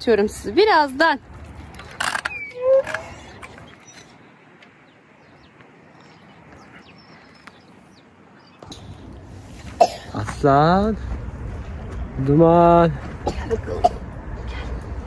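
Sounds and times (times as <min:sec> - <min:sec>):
faint bird chirps: 0:02.2 - 0:08.7.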